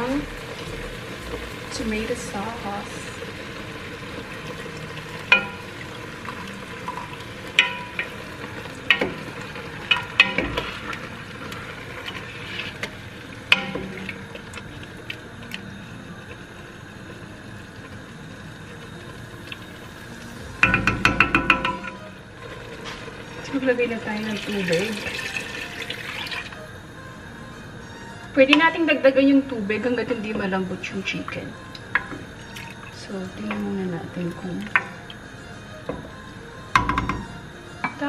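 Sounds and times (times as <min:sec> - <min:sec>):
chicken sizzling in a pot: 0:00.0 - 0:38.0
wooden spoon stirring against pot: 0:00.4 - 0:15.6
can knocking against pot: 0:20.6 - 0:22.0, 0:36.8 - 0:38.0.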